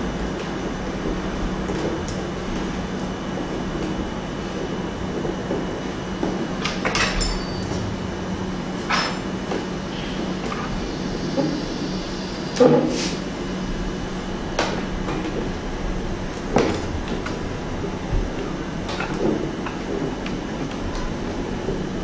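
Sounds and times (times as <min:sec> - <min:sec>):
steady low hum: 0:02.9 - 0:12.6.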